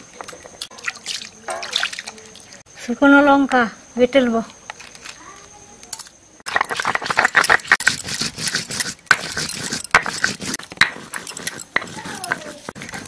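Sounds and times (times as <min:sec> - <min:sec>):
stone roller crushing chillies: 0:06.5 - 0:13.0.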